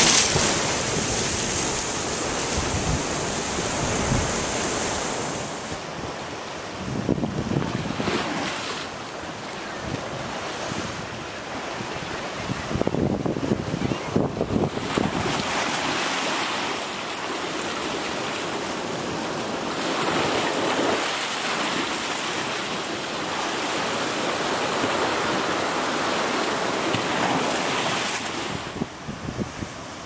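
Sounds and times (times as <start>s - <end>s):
surf breaking on rocky shore: 0.0s - 30.0s
strong wind buffeting microphone: 12.4s - 15.4s, 28.5s - 30.0s.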